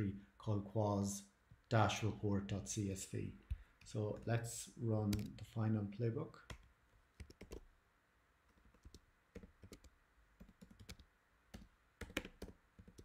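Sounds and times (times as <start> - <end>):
typing on computer keyboard: 6.5 - 7.6, 8.5 - 13.0.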